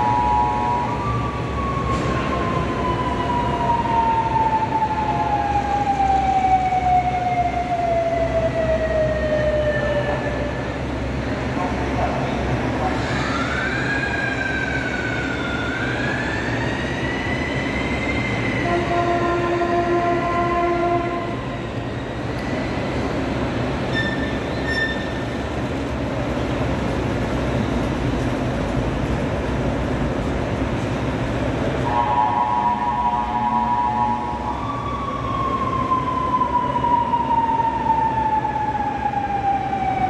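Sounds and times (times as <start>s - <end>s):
engines rumbling: 0.0s - 40.0s
chord horn: 18.6s - 21.4s
vehicle horns: 18.6s - 21.4s
high wailing tone: 31.8s - 40.0s.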